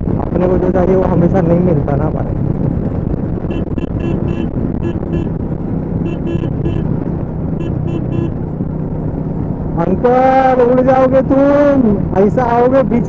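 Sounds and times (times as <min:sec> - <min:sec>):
wind rushing on microphone: 0:00.0 - 0:13.0
motorcycle engine running: 0:02.1 - 0:10.6
short high-pitched beeps: 0:03.5 - 0:05.3, 0:06.0 - 0:06.8.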